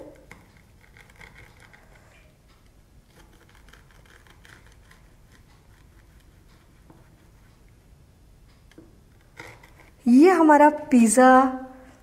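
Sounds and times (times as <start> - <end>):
pizza cutter crackling through crust: 0.1 - 1.9, 3.1 - 6.6, 9.1 - 10.0.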